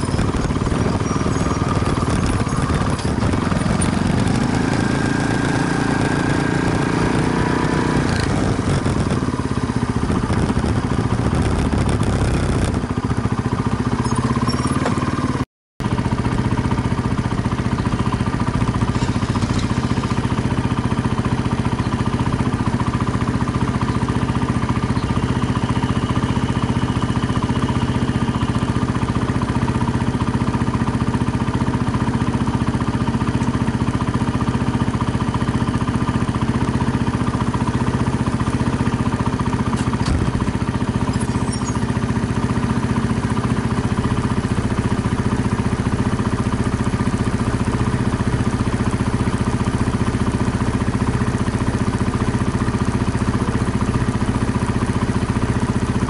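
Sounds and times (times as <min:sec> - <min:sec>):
motorcycle engine idling: 0:00.0 - 0:56.0.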